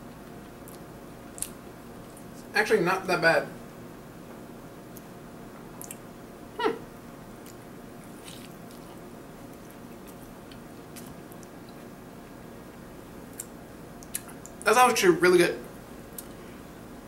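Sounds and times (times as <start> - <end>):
person chewing: 0.1 - 2.4, 5.7 - 6.1, 7.4 - 12.0, 13.3 - 14.6
wet mouth clicks: 5.8 - 6.0.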